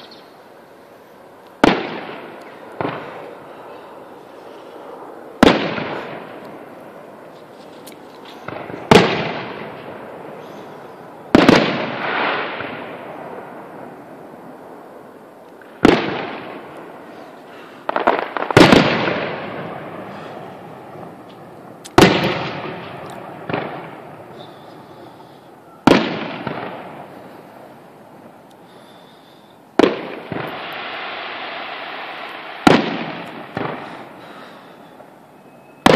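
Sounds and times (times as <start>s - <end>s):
firework shells booming: 1.6s - 3.5s, 5.4s - 6.7s, 8.3s - 14.0s, 15.6s - 24.9s, 25.8s - 27.9s, 29.8s - 35.1s
softer firework bangs: 1.6s - 3.5s, 5.4s - 6.7s, 7.7s - 13.6s, 15.6s - 17.0s, 17.8s - 27.9s, 29.8s - 35.9s.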